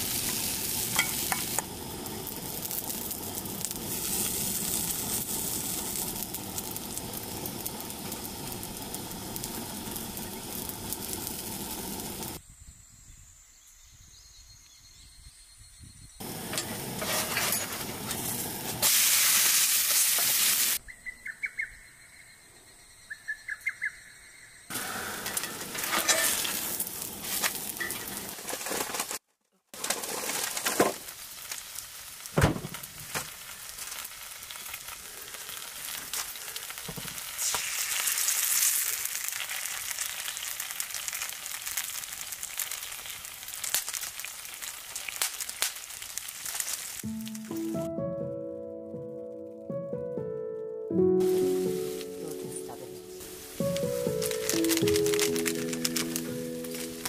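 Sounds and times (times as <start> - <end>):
food sizzling in a skillet: 0.0 - 12.4, 16.2 - 20.8, 24.7 - 29.2, 29.8 - 47.5, 51.2 - 57.0
birds chirping: 20.8 - 25.3.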